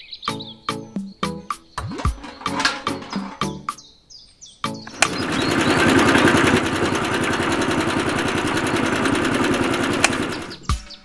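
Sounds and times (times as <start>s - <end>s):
small electric motor running: 5.0s - 10.6s.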